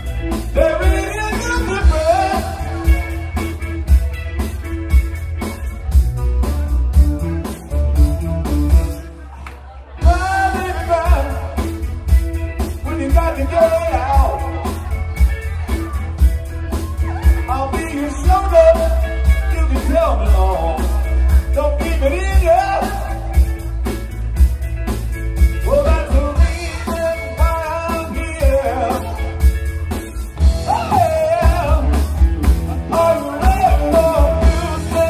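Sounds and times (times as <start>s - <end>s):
live rock band playing: 0.0s - 35.0s
person singing: 0.3s - 3.4s, 10.0s - 11.8s, 25.6s - 29.4s, 30.4s - 35.0s.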